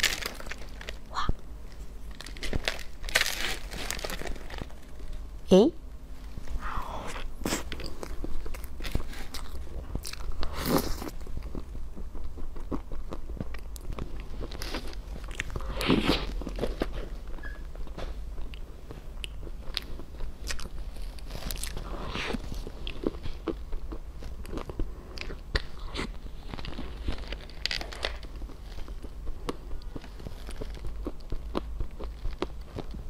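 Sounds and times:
crunchy biting and chewing: 0:06.8 - 0:17.6, 0:18.3 - 0:33.0.

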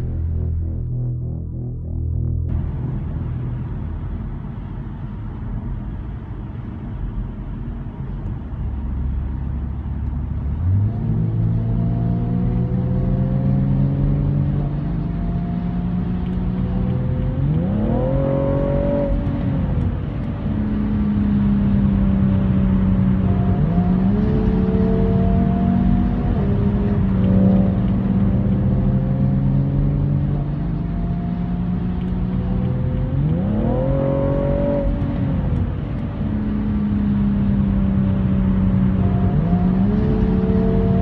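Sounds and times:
car engine accelerating: 0:00.0 - 0:41.0.

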